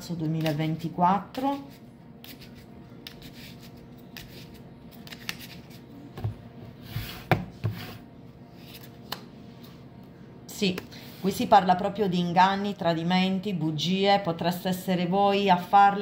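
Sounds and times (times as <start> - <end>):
playing cards shuffled by hand: 2.2 - 5.8.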